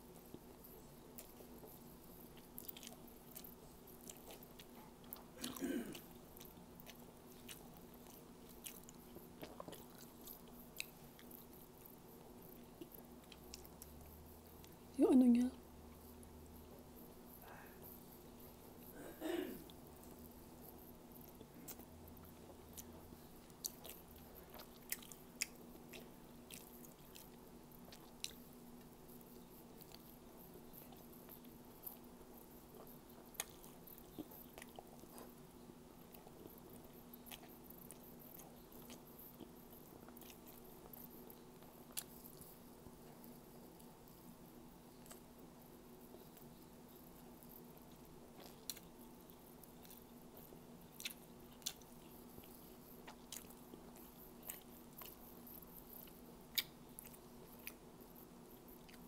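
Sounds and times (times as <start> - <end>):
crunchy clicks and mouth sounds: 0.0 - 14.8, 15.9 - 59.0
close-up chewing: 0.0 - 14.9, 19.6 - 59.0.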